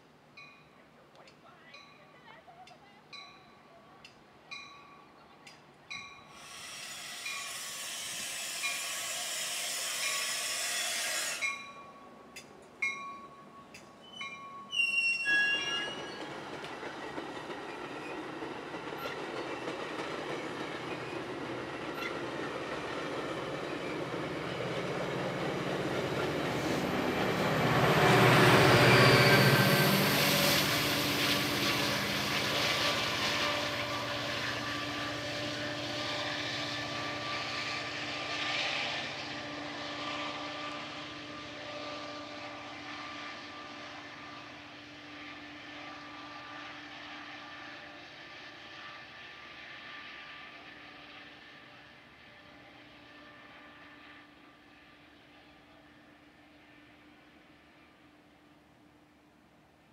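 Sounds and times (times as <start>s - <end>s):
train bell dinging: 0.3s - 6.4s, 7.2s - 16.3s
train cars rumble and clatter: 4.0s - 57.6s
high wheel squeal: 6.3s - 11.7s, 14.0s - 16.4s, 28.4s - 34.8s.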